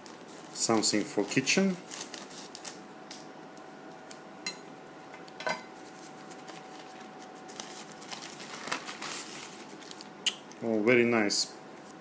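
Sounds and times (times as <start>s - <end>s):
plastic bag crinkling: 0.0s - 2.8s, 5.9s - 10.2s
faint steady hum: 0.0s - 12.0s.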